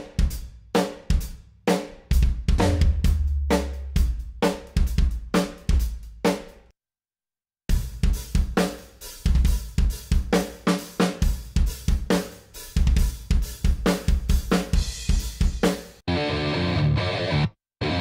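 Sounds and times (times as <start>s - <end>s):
drum kit groove: 0.0s - 6.6s, 7.7s - 16.0s
electric guitar riff: 16.1s - 18.0s.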